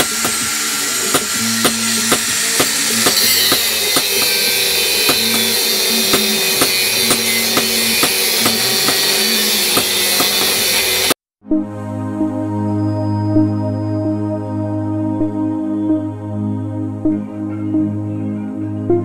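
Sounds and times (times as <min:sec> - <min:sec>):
background music with drum beats: 0:00.0 - 0:11.0
angle grinder cutting steel: 0:00.0 - 0:11.2.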